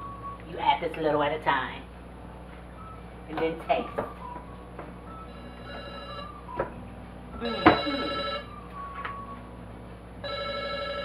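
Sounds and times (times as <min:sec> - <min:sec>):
telephone ringing: 0:05.1 - 0:06.6, 0:07.4 - 0:09.4, 0:10.2 - 0:11.0.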